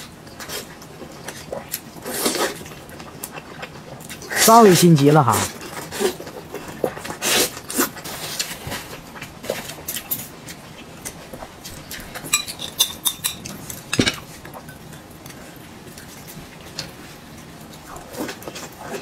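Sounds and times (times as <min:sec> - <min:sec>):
chopsticks clinking on plates: 0:11.9 - 0:14.2.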